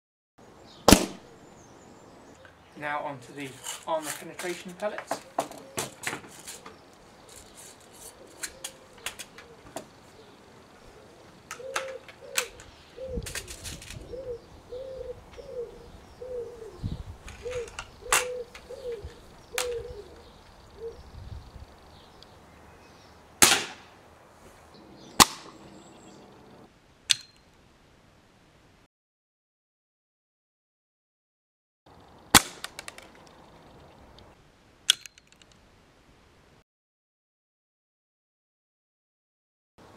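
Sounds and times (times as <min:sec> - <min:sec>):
air rifle firing: 0:00.9 - 0:01.3, 0:23.4 - 0:23.9, 0:25.2 - 0:25.8, 0:32.3 - 0:33.0
pigeon cooing: 0:05.1 - 0:06.0, 0:08.0 - 0:21.1, 0:24.8 - 0:26.7
air rifle clicks and knocks: 0:32.4 - 0:33.3.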